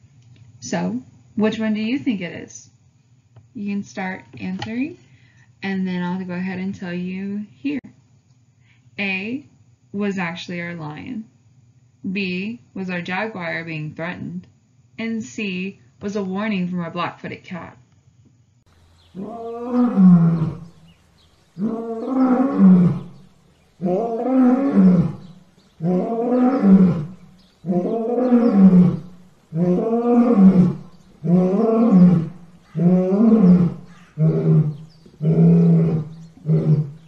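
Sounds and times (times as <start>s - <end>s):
lion roaring: 19.0s - 37.0s.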